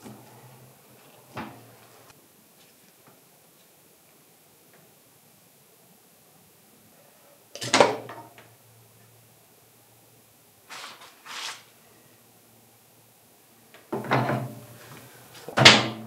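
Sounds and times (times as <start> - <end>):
scraping sounds: 10.7 - 11.7.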